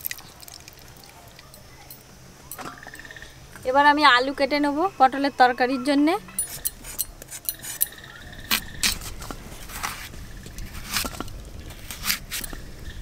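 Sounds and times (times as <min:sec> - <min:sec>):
potato scraping against blade: 0:06.4 - 0:12.6.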